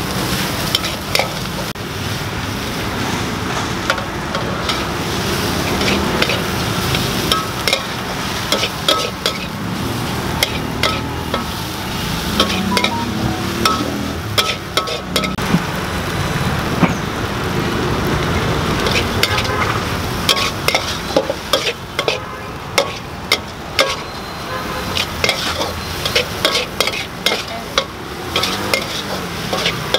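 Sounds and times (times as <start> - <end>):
food sizzling in pan: 0.0 - 29.9
metal spatula scraping pan: 5.6 - 9.6, 10.4 - 11.6, 12.3 - 15.4, 18.8 - 19.6, 20.3 - 24.2, 24.9 - 29.9.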